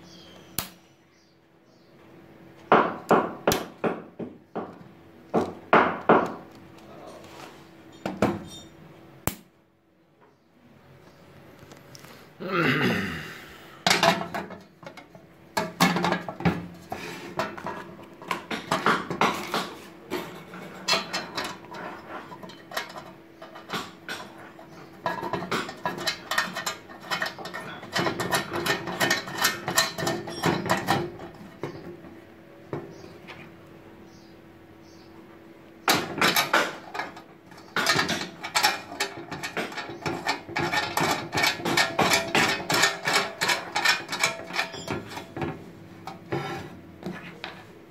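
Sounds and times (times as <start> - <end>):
metal box clicks and scrapes: 36.0 - 45.4.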